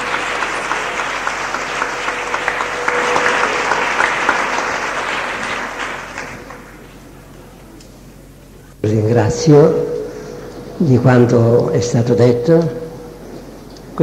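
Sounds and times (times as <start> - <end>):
congregation applauding: 0.0 - 7.4.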